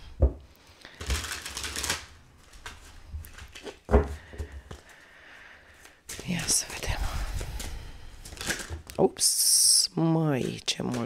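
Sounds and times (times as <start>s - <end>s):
cards shuffled by hand: 0.8s - 3.9s, 5.8s - 9.0s, 10.4s - 11.0s.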